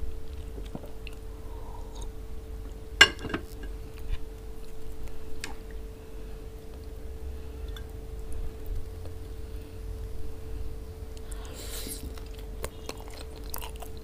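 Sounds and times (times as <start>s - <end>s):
steady low hum: 0.0s - 14.0s
wet squishes of food: 11.1s - 14.0s.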